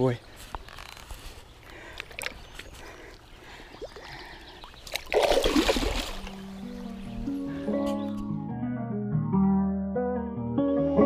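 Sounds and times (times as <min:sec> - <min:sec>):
fish splashing in river: 0:04.7 - 0:06.6
acoustic guitar music: 0:06.4 - 0:11.0.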